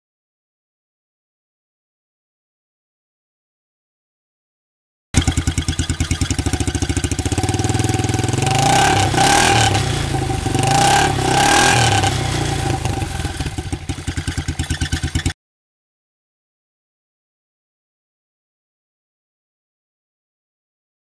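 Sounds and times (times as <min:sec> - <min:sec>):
engine idling and revving: 0:05.2 - 0:15.4.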